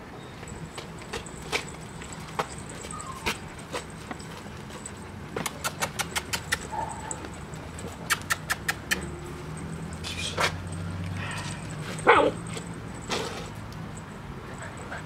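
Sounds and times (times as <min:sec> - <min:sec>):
puppy yelp: 0:02.5 - 0:03.6, 0:05.6 - 0:07.4, 0:11.2 - 0:12.7.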